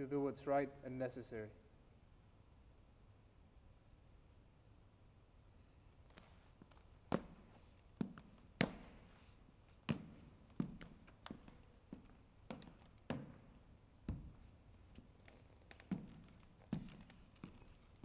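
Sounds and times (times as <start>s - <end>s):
hard-soled footsteps on stage floor: 6.1s - 18.0s.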